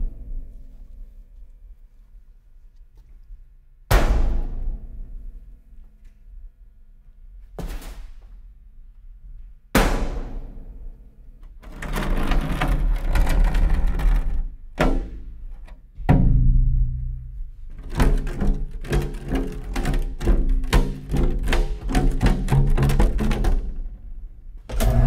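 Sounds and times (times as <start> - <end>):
heavy booming hits: 3.9 - 5.5, 16.0 - 17.4
music: 16.0 - 23.9.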